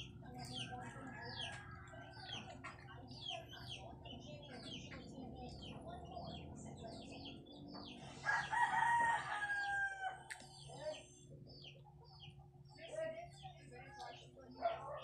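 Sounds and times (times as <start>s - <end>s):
small birds chirping: 0.0s - 15.0s
rooster crowing: 8.2s - 10.3s.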